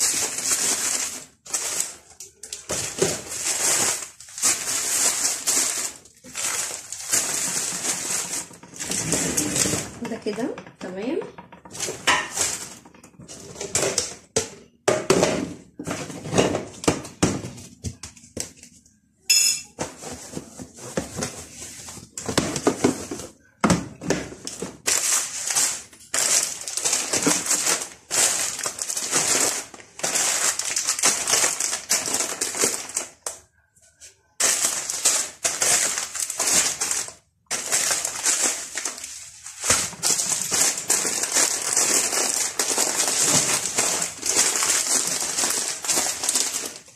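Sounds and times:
plastic packets crinkling: 0.0 - 10.5, 11.7 - 14.3, 24.2 - 33.5, 34.4 - 46.9.

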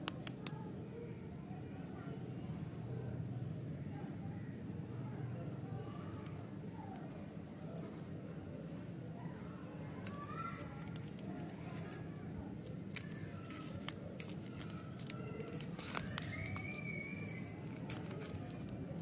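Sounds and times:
candy wrapper crinkling: 0.0 - 0.6, 9.6 - 19.0.

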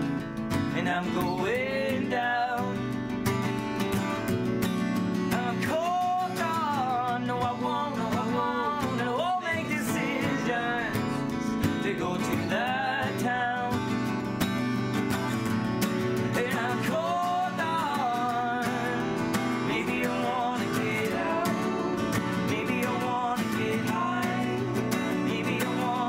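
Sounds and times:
acoustic guitars strumming: 0.0 - 26.0
men singing: 0.8 - 2.8, 5.3 - 14.0, 16.2 - 26.0.

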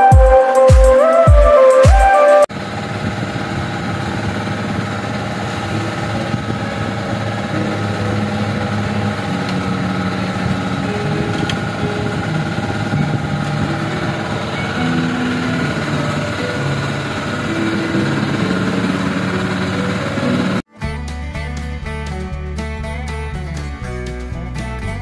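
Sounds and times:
small boat engine droning: 2.5 - 20.7.

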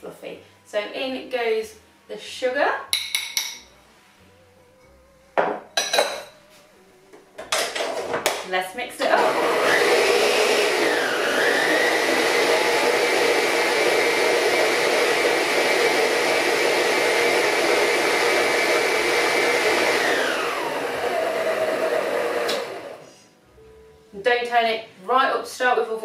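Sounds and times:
stand mixer motor whining: 9.2 - 23.0.

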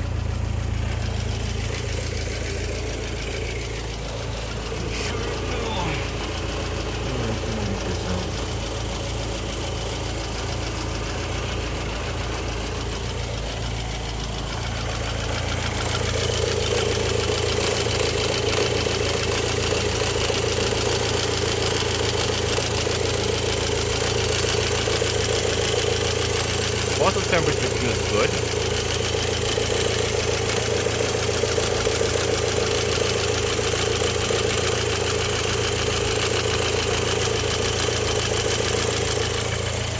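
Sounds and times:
car engine idling: 0.0 - 39.9.

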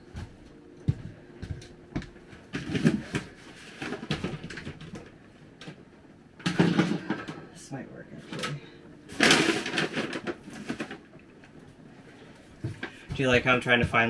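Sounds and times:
rustling of things moved: 0.2 - 5.8, 8.2 - 14.0
household items clattering: 2.5 - 5.8, 6.4 - 7.5, 8.2 - 11.6.

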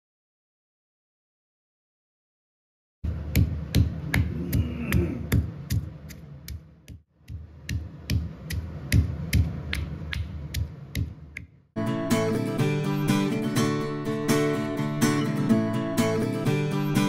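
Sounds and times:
stone pestle pounding in mortar: 3.2 - 11.4.

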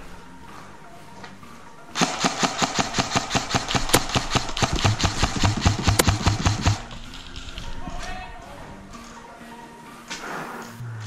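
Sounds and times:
airsoft rifle rapid firing: 2.0 - 7.7.

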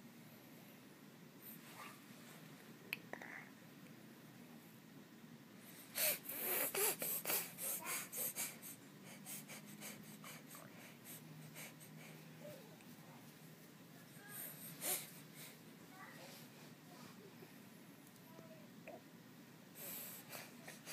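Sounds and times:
baby sniffling: 5.9 - 12.2, 14.2 - 15.2.

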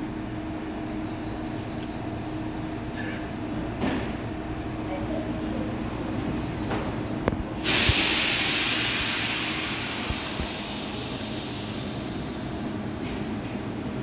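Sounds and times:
compressed air hissing: 7.6 - 12.4.

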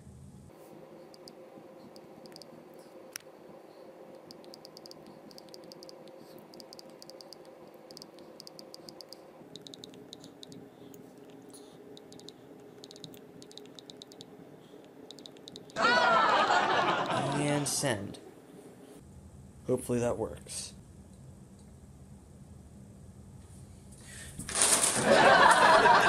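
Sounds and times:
faint steady hum: 0.0 - 26.0
phone keyboard clicking: 2.2 - 2.5, 4.2 - 10.6, 12.0 - 14.3, 15.1 - 15.8.

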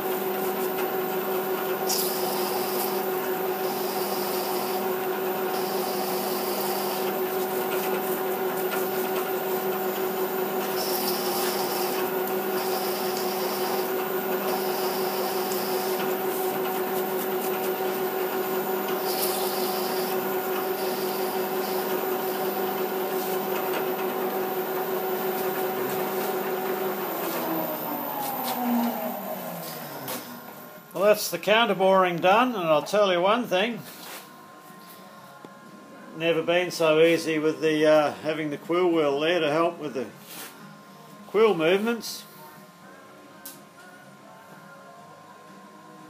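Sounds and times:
milling machine spindle hum: 0.0 - 42.8
cutter scraping metal: 1.8 - 4.9, 5.5 - 7.5, 10.6 - 18.0, 18.9 - 22.4.

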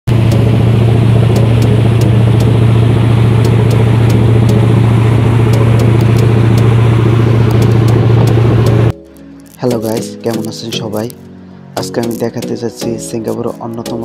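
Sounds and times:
motorboat engine running: 0.1 - 9.0.

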